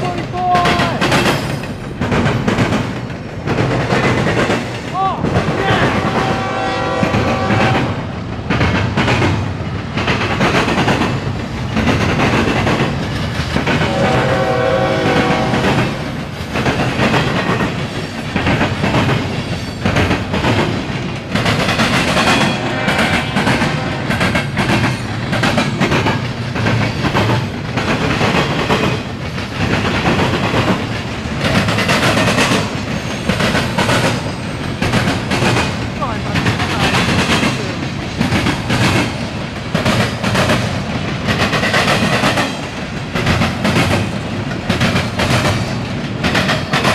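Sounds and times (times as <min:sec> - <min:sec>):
train wheels rumbling on rail: 0:00.0 - 0:46.9
train horn: 0:05.6 - 0:08.1, 0:13.8 - 0:16.0, 0:22.3 - 0:24.2.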